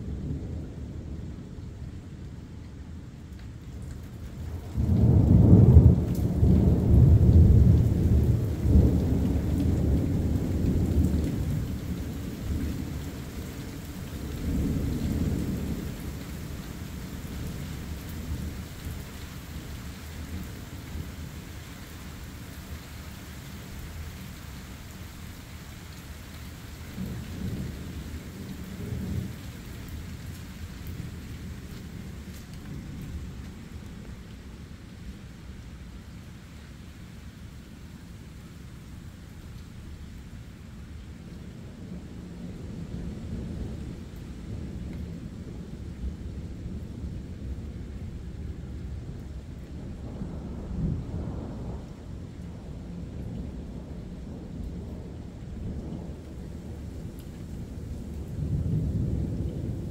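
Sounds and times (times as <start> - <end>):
thunder rumbling: 0.0 - 21.5, 41.2 - 59.9
steady rain: 0.0 - 59.9.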